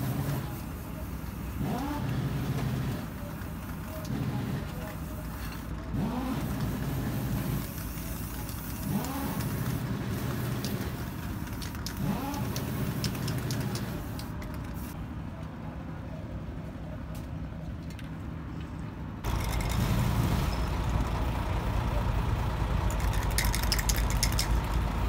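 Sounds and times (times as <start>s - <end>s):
vehicle engine revving: 1.6s - 3.0s, 5.9s - 7.6s, 8.8s - 10.9s, 12.0s - 13.4s, 19.3s - 22.6s.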